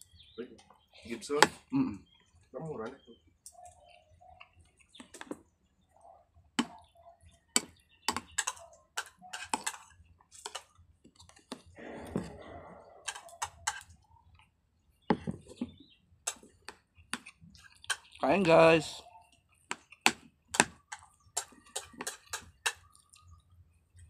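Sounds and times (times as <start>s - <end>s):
cutlery clinking on ceramic plate: 13.0s - 13.9s, 20.1s - 22.8s.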